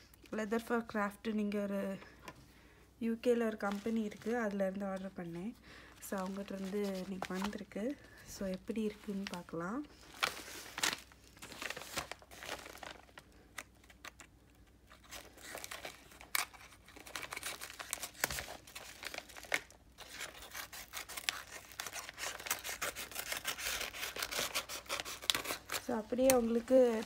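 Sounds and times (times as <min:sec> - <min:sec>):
packaging tearing and crinkling: 0:10.0 - 0:27.0.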